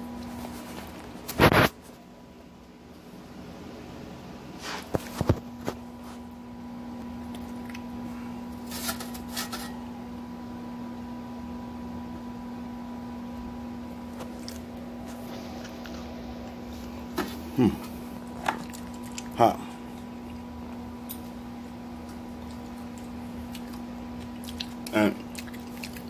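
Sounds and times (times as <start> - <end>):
rustling handling noise: 0.1 - 2.0
kitchen appliance humming: 4.6 - 26.0.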